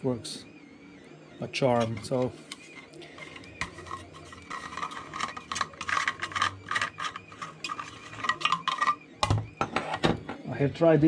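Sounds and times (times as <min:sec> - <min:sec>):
plastic nut scraping on threads: 0:03.2 - 0:09.0.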